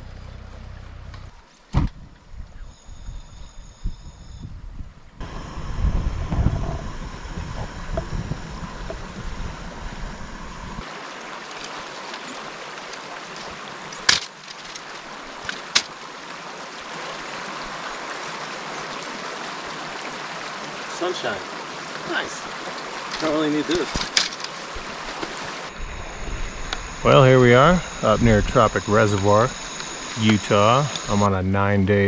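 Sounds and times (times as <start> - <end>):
heavy low rumble: 0.0 - 2.6, 4.6 - 10.8, 25.7 - 32.0
creek flowing: 5.2 - 31.3.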